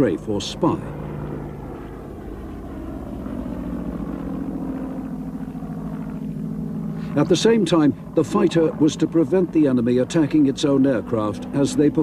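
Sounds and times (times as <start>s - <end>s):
propeller aircraft engine droning: 0.0s - 12.0s.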